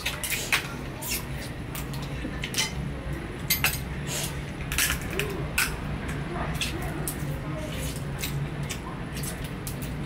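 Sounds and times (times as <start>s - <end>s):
cutlery and dishes clinking: 3.5s - 3.9s.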